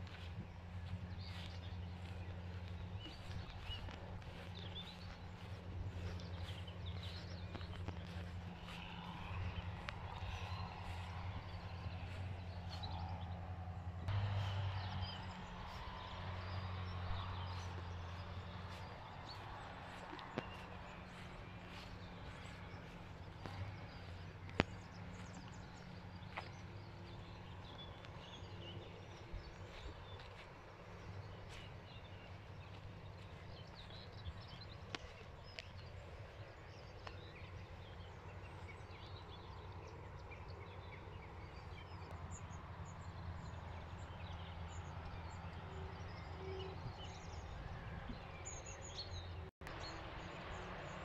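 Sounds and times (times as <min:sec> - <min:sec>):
steady low rumble: 0:00.0 - 0:40.8
birds chirping: 0:00.0 - 0:51.0.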